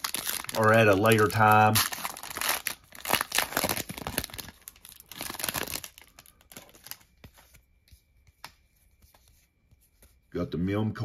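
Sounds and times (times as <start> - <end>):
plastic wrapper tearing and crinkling: 0.0 - 7.1.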